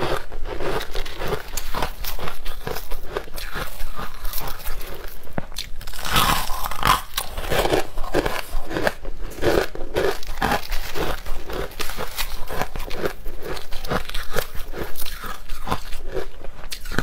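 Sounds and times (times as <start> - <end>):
crunching ice: 0.0 - 17.0
fingers scooping ice: 5.9 - 16.0.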